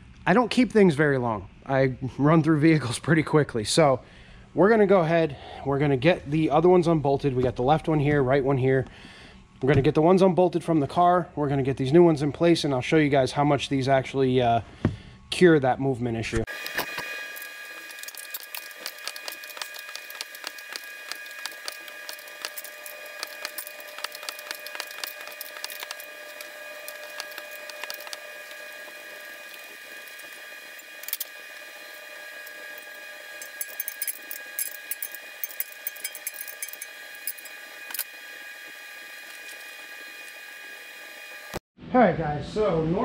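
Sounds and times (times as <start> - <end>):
steady high hum: 16.5 - 41.6
hand wrench clicking: 32.8 - 38.1.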